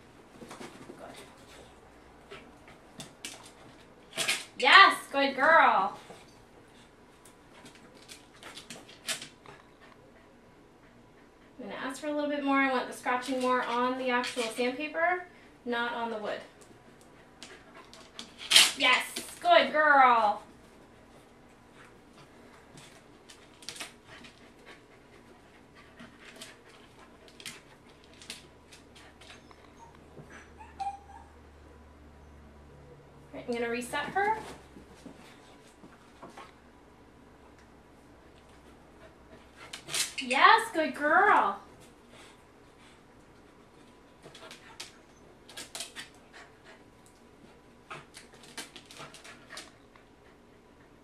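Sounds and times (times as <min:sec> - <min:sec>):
dog panting: 0:09.5 - 0:11.6, 0:23.9 - 0:28.0, 0:42.0 - 0:51.0.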